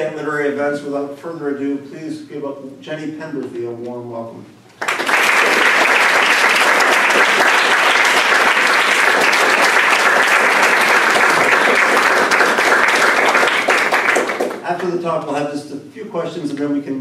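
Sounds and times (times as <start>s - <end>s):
audience applauding: 4.8s - 14.9s.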